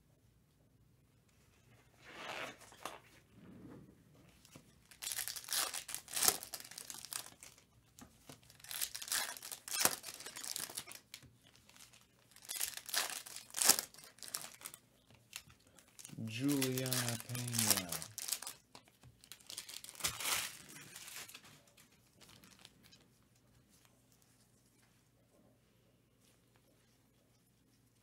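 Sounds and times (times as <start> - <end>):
foil wrappers tearing and crinkling: 4.8 - 7.6, 8.4 - 22.7.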